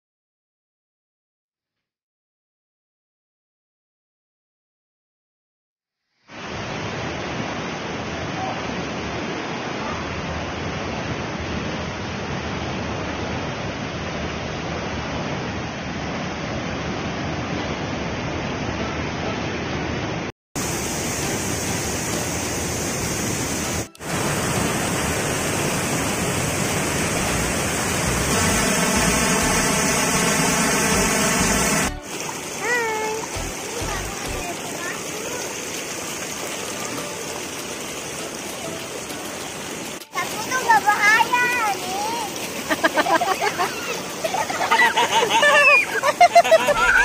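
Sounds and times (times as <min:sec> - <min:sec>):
water rushing over rocks: 0:20.6 - 0:47.0
background music chord: 0:26.7 - 0:32.5, 0:33.2 - 0:34.4.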